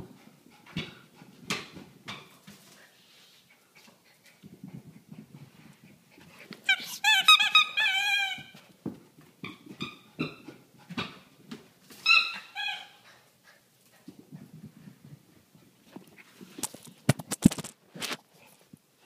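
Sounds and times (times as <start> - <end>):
squeaky ball squeaking: 6.7 - 8.6, 12.0 - 13.0.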